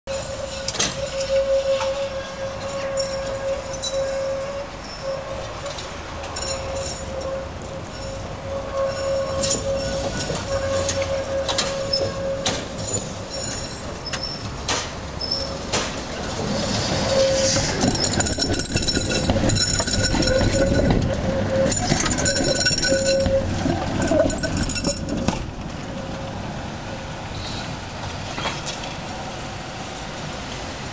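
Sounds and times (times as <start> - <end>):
wheels squealing: 0.1 - 26.4
tram wheels clattering over points: 9.0 - 25.8.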